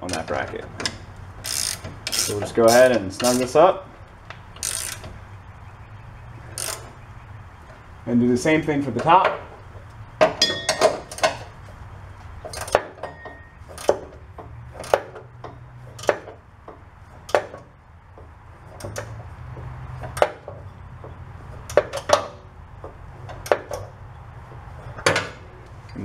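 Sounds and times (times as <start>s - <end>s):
metal wrench clinking on nut: 0.1s - 3.6s, 10.4s - 11.4s.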